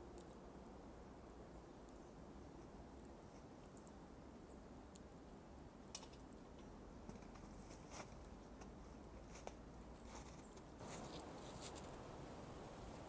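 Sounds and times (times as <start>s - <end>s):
faint clicks and rustles: 5.8s - 13.0s.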